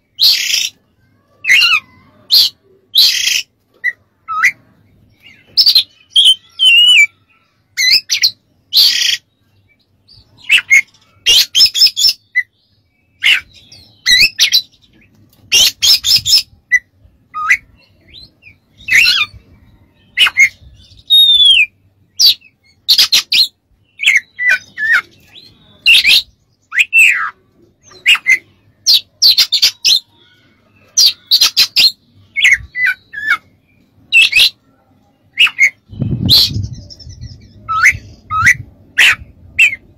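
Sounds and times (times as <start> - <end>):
bird singing whistles and chatter: 1.4 - 7.2, 13.1 - 14.9, 15.5 - 34.6, 35.2 - 39.9.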